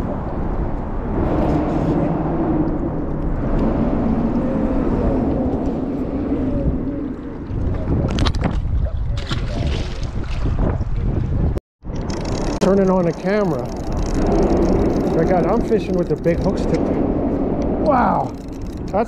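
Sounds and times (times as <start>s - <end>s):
wind rumble on microphone: 0.0s - 19.0s
engine humming: 11.8s - 19.0s.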